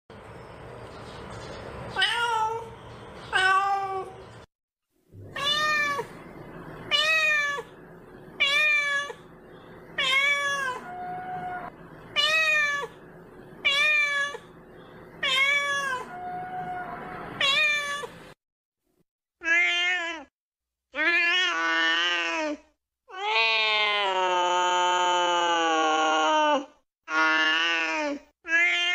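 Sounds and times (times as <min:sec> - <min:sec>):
kitten meowing: 0:05.3 - 0:06.1, 0:10.0 - 0:12.9, 0:15.2 - 0:18.1.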